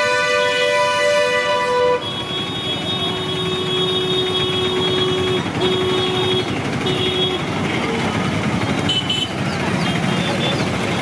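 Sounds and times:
vehicle horn: 0:00.0 - 0:07.9, 0:08.8 - 0:09.4
road traffic: 0:00.0 - 0:11.0.

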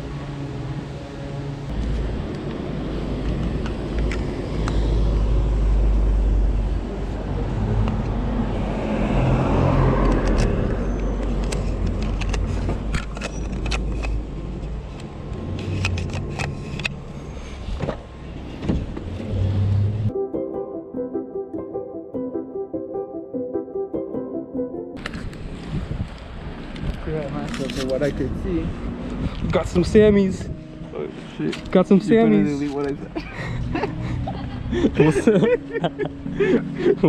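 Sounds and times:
car passing: 0:00.0 - 0:13.0, 0:15.2 - 0:20.1
handling clicks and knocks: 0:11.2 - 0:17.0.

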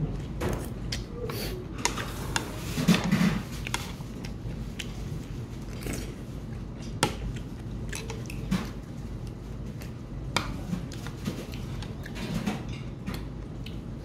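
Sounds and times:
person chewing: 0:03.6 - 0:08.5.

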